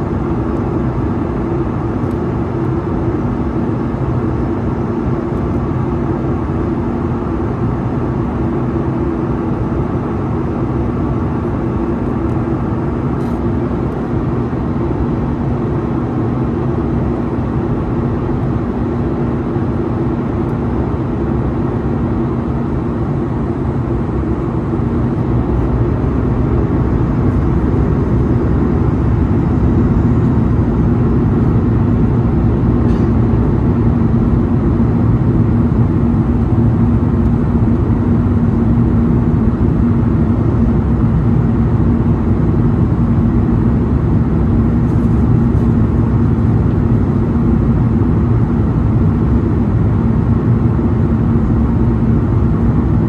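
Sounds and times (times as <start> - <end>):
jet engine drone: 0.0 - 53.0
low hum: 21.4 - 53.0.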